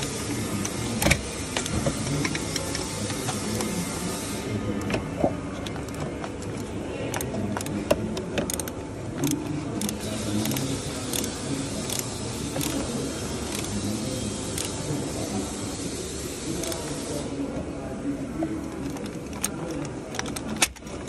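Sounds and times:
ratchet wrench clicking: 8.4 - 14.8.

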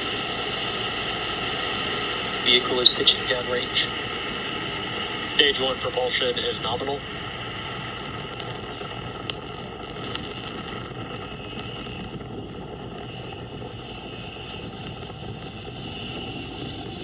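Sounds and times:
rocket engines rumbling: 0.0 - 17.0
sharp crackles: 6.6 - 17.0.

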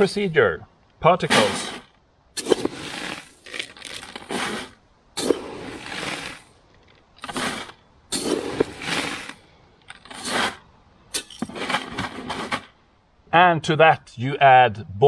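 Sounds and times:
grain pouring and scraping: 1.2 - 10.6, 11.2 - 12.8.

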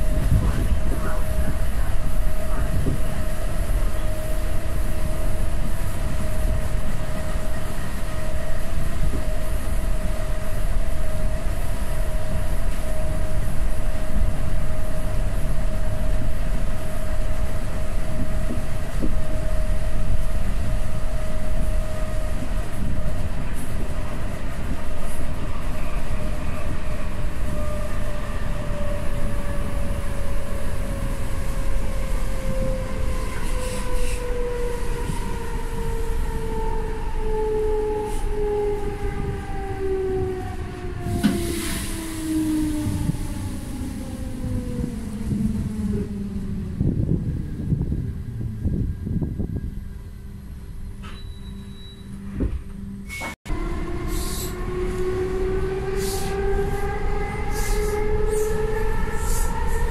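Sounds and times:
train wheels rumbling on track: 0.0 - 59.9
train motor whine: 24.7 - 59.9.

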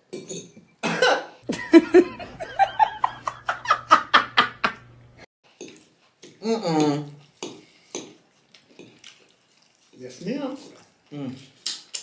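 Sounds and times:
woman laughing: 1.5 - 4.8.

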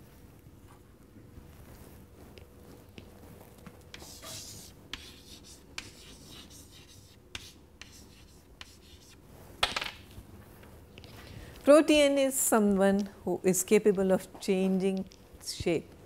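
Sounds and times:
chalk scratching on chalkboard: 3.9 - 9.2.

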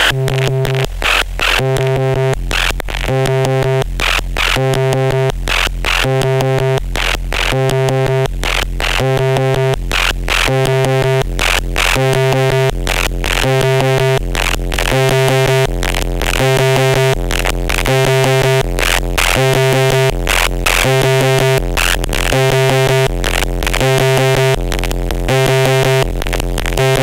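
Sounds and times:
buzzy synthesizer tone: 0.0 - 27.0
low synth bass note: 0.0 - 27.0.

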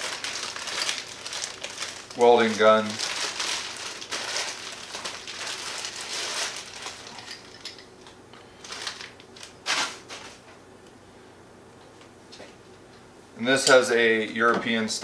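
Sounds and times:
plastic packaging crinkling: 0.0 - 10.4.

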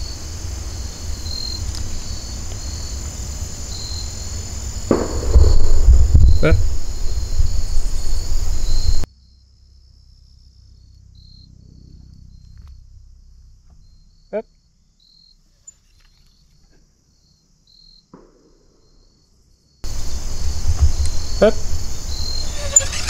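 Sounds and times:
crickets chirring: 0.0 - 23.0
brief squeak: 22.3 - 23.0.

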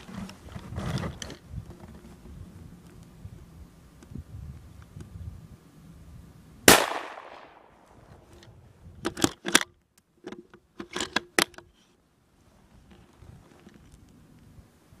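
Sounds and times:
rifle shot with echo: 6.7 - 7.8.

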